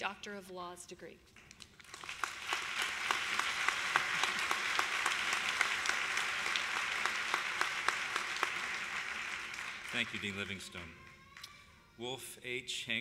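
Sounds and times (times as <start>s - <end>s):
audience applause: 1.7s - 11.5s.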